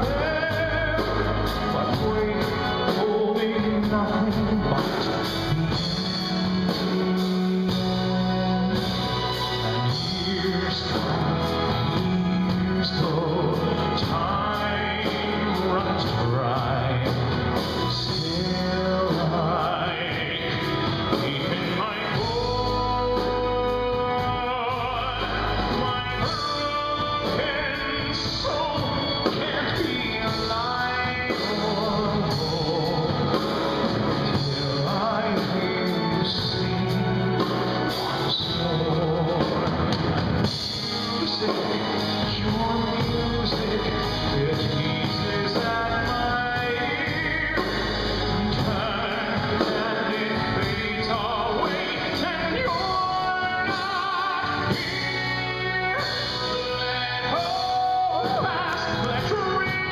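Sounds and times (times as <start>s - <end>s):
band accompaniment: 0.0s - 59.9s
man singing into microphone: 0.0s - 59.9s.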